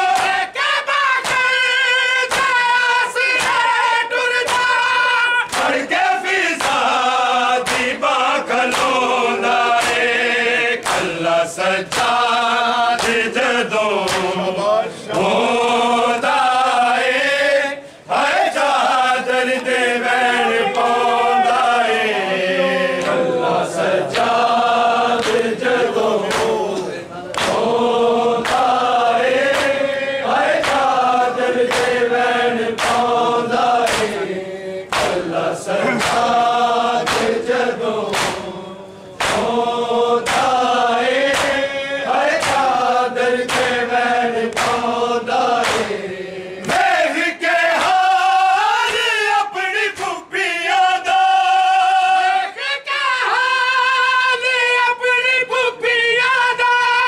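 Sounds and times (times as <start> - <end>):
men chanting a lament: 0.0 - 57.0
hands slapping chests: 0.1 - 0.4, 1.1 - 1.6, 2.2 - 2.7, 3.3 - 3.7, 4.4 - 4.8, 5.5 - 10.2, 10.8 - 13.4, 14.0 - 14.4, 23.0 - 23.3, 24.1 - 24.5, 25.1 - 30.0, 30.6 - 32.1, 32.7 - 33.2, 33.8 - 34.3, 34.9 - 38.6, 39.2 - 39.6, 40.2 - 46.0, 46.6 - 47.0.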